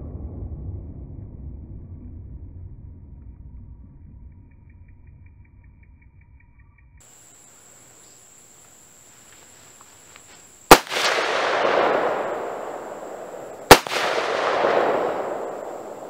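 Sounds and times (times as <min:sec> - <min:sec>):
rifle shots with rolling echo: 0:07.2 - 0:16.0.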